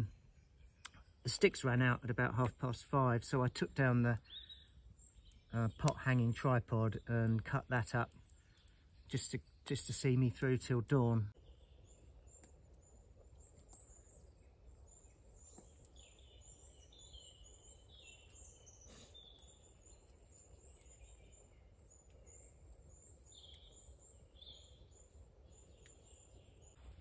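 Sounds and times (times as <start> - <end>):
birds chirping and warbling: 0.0 - 27.0
faint clicks: 12.3 - 13.9.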